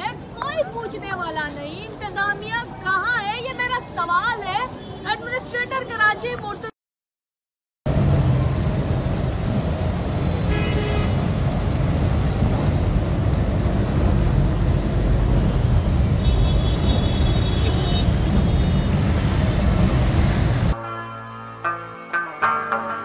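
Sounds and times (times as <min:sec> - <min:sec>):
vehicle engine and road rumble: 0:07.9 - 0:20.8
water noise: 0:07.9 - 0:20.8.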